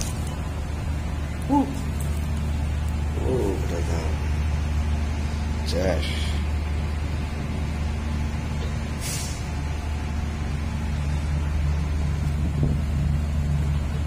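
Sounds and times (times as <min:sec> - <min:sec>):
heavy machinery drone: 0:00.0 - 0:14.0
brief hiss: 0:09.0 - 0:09.5.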